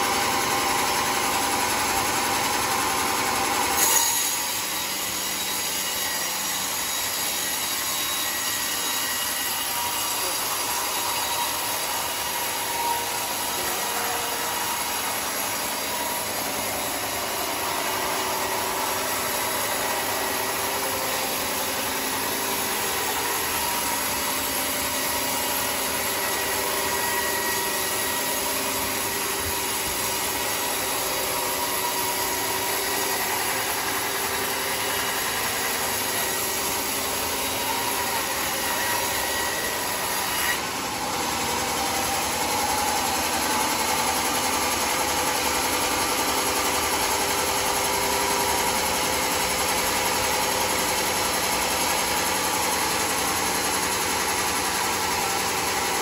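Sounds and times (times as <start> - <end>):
sawmill blade cutting wood: 0.0 - 56.0.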